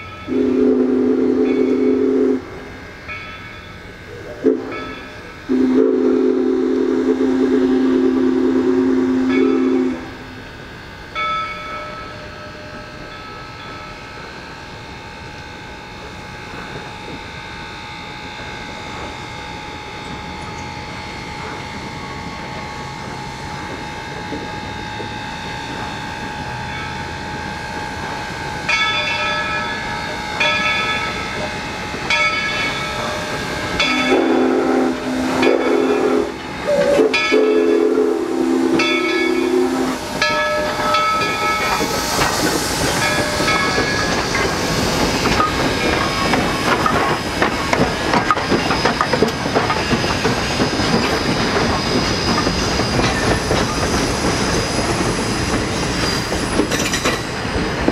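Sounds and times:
steam locomotive chime whistles: 0:00.0 - 0:57.3
hissing steam: 0:00.0 - 0:57.9
rolling rumble of railway cars: 0:00.0 - 0:57.9
deeper whistle: 0:33.8 - 0:42.4.

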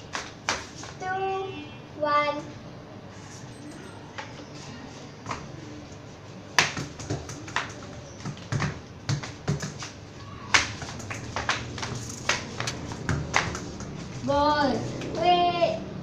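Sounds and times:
ball dribbled on hard floor: 0:06.6 - 0:10.0, 0:10.6 - 0:14.2.

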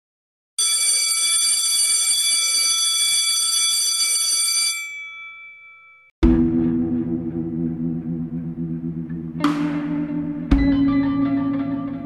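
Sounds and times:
electric school bell ringing: 0:00.6 - 0:06.1.

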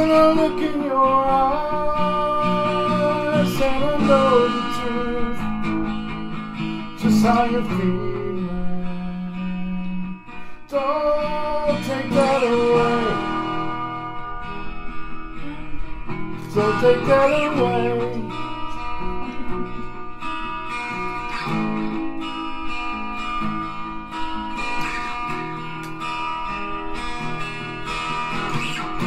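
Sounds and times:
person singing: 0:00.0 - 0:05.6, 0:07.0 - 0:09.7, 0:10.7 - 0:13.7, 0:15.4 - 0:20.0
acoustic guitar strumming: 0:00.0 - 0:29.0.

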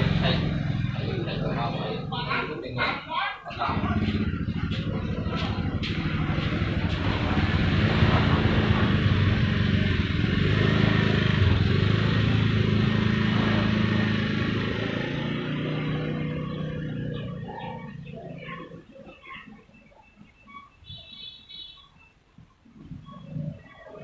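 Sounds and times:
scooter engine pulling away: 0:00.0 - 0:02.5, 0:03.6 - 0:18.8.

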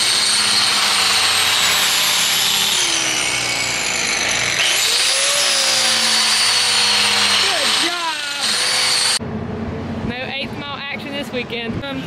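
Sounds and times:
angle grinder grinding rubber: 0:00.0 - 0:09.2.

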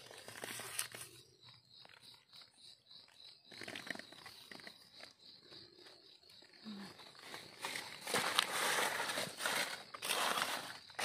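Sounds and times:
knife scraping in soil: 0:00.0 - 0:01.4, 0:07.4 - 0:11.0
leaves rustling: 0:07.2 - 0:11.0.

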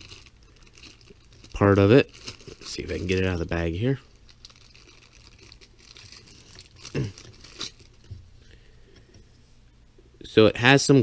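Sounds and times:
plastic bag crinkling faintly: 0:00.0 - 0:08.2.

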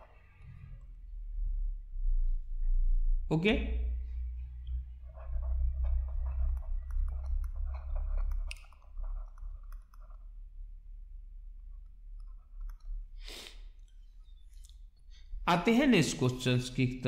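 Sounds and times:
low electrical hum: 0:00.0 - 0:17.0
stylus tapping on tablet screen: 0:05.2 - 0:10.2.

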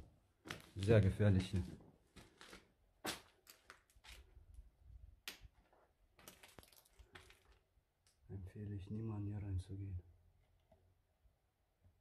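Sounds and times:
footsteps crunching on rubble: 0:00.0 - 0:04.4, 0:05.5 - 0:07.6.

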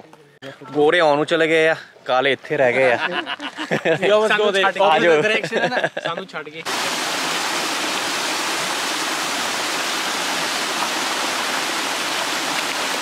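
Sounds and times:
small waterfall splashing: 0:06.6 - 0:13.0.

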